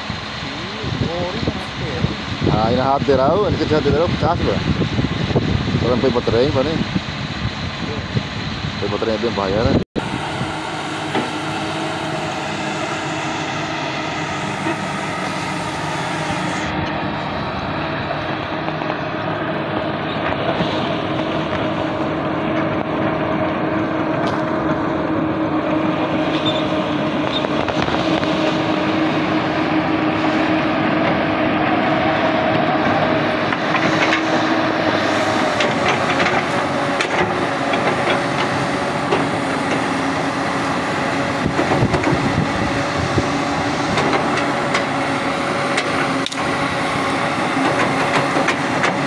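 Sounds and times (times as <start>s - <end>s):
steady tone: 0.0s - 37.4s
excavator diesel engine running: 0.0s - 49.0s.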